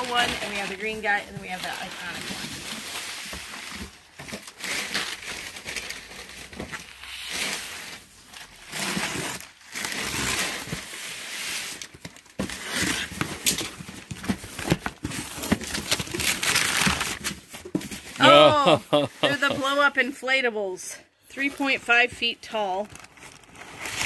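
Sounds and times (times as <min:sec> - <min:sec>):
plastic packing crinkling: 0:00.0 - 0:11.1, 0:11.7 - 0:18.2, 0:22.6 - 0:24.0
cardboard and tape scraping: 0:00.0 - 0:19.9, 0:21.4 - 0:24.0.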